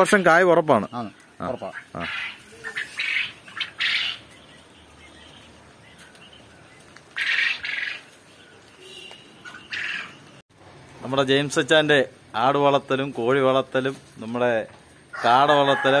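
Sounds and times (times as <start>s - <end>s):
poultry squawking: 0.0s - 10.4s.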